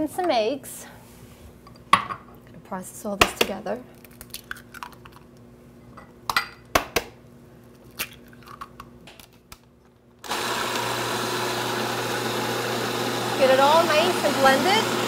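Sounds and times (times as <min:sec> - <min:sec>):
food processor running: 0:10.2 - 0:15.0.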